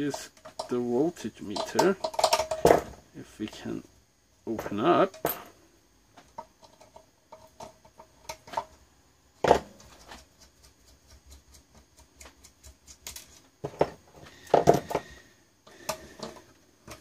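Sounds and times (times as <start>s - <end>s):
tools clicking and clattering: 0.1s - 0.8s, 1.4s - 3.0s.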